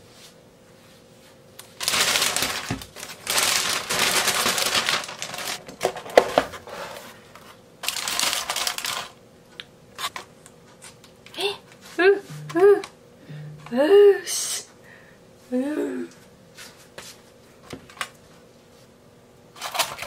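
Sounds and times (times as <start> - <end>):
aluminium foil crinkling: 1.6 - 6.2, 7.8 - 9.2, 19.6 - 20.0
plastic bag rustling: 1.7 - 7.0, 7.8 - 9.2.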